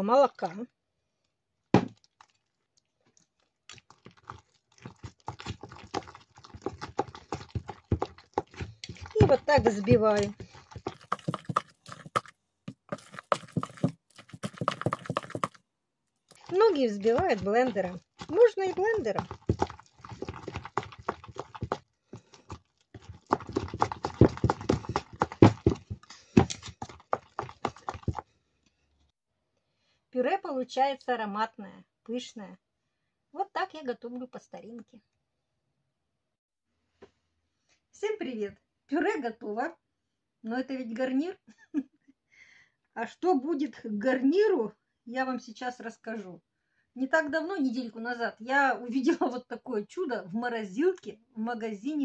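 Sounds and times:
potatoes squelching under masher: 0:03.6 - 0:15.6, 0:16.3 - 0:28.2
potato masher knock: 0:08.5 - 0:15.5.

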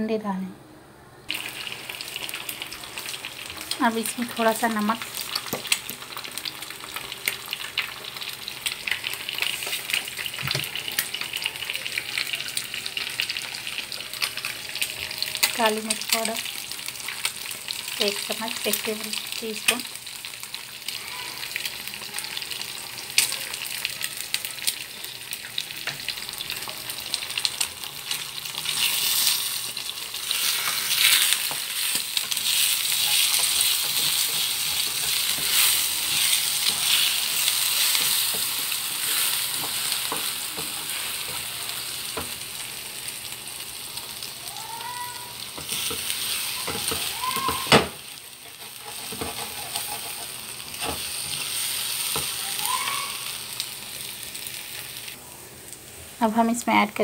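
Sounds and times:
eggs sizzling in oil: 0:01.3 - 0:57.0
spatula scraping and tapping pan: 0:30.3 - 0:41.5, 0:45.6 - 0:52.4.

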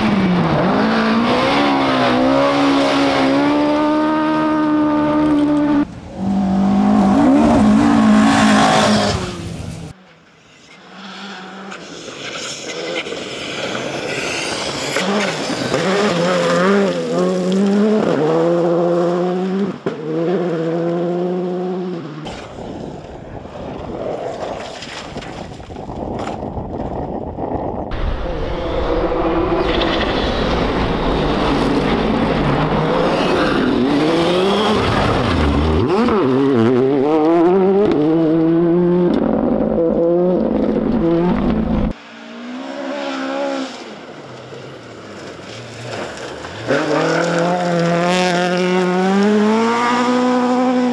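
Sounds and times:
rally cars passing at speed: 0:00.0 - 0:24.6, 0:27.9 - 0:50.9.

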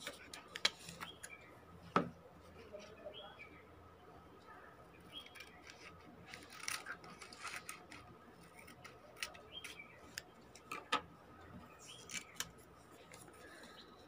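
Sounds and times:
paper rustling and clicks: 0:00.0 - 0:01.3, 0:05.2 - 0:11.0
scissors snipping paper: 0:05.2 - 0:10.7, 0:11.9 - 0:13.3.

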